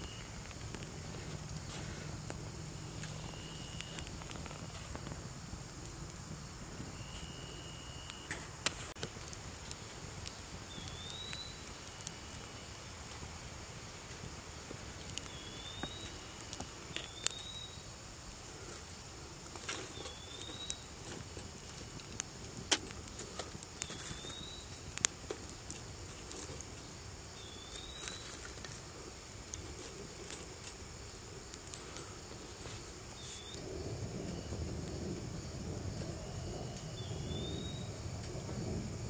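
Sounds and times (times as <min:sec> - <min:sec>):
twigs crackling in a stove: 0:00.0 - 0:39.0
short steady whistles: 0:03.0 - 0:04.7, 0:06.9 - 0:08.4, 0:10.7 - 0:12.6
bird chirping: 0:10.7 - 0:11.6, 0:15.2 - 0:17.8, 0:19.9 - 0:20.9.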